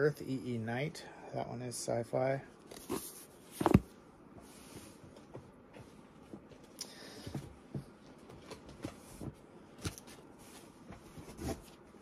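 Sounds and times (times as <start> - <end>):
books knocking and thumping: 2.8 - 4.0.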